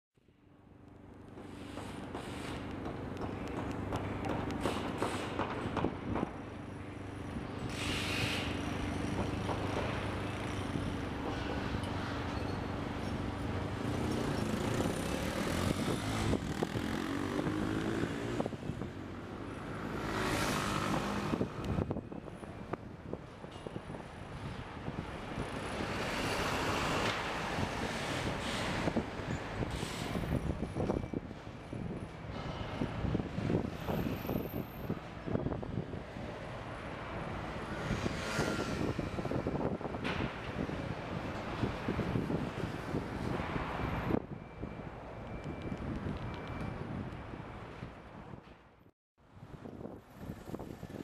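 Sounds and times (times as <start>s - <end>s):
sharp clicks and knocks: 1.3s - 6.4s
hiss: 7.7s - 8.6s
vehicle passing with hiss: 7.7s - 9.1s, 13.8s - 18.8s, 19.7s - 21.5s, 37.4s - 39.7s.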